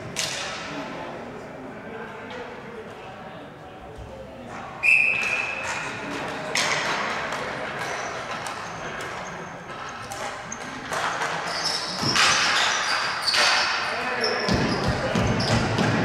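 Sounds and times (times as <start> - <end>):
hockey sticks and ball clacking: 0.0 - 0.9, 4.5 - 16.0
players' voices: 0.0 - 16.0
sneakers squeaking: 7.8 - 16.0.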